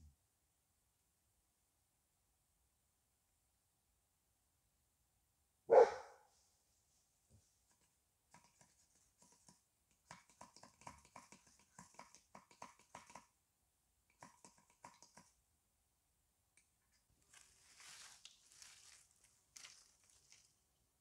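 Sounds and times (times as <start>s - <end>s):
dog barking: 5.7s - 6.3s
scrapes and clicks on wood: 7.7s - 13.3s.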